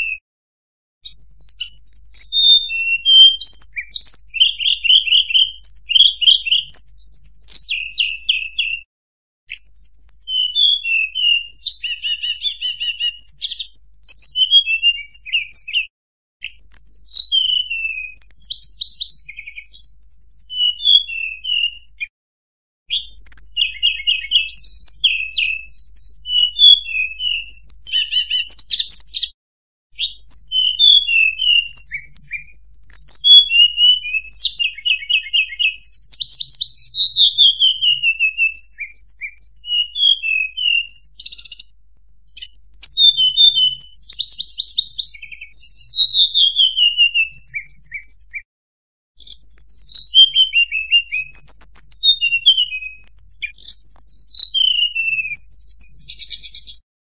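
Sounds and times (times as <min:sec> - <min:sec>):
bird whistles and trills: 0:00.0 - 0:00.2, 0:01.0 - 0:08.9, 0:09.5 - 0:22.1, 0:22.9 - 0:29.4, 0:30.0 - 0:41.7, 0:42.4 - 0:48.4, 0:49.2 - 0:56.8.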